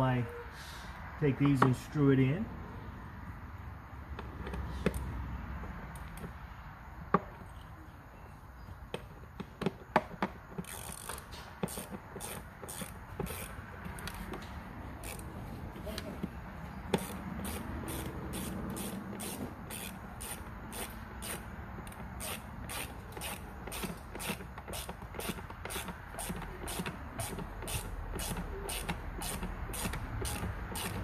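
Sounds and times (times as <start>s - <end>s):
ratcheting driver clicking: 10.6s - 15.3s, 16.9s - 31.0s.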